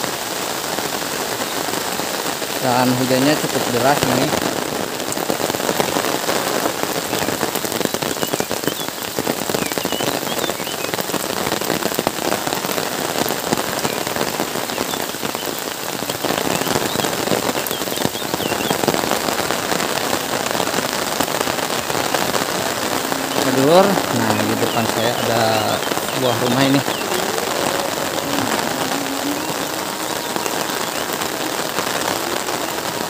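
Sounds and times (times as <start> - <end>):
heavy rain on water and grass: 0.0 - 33.0.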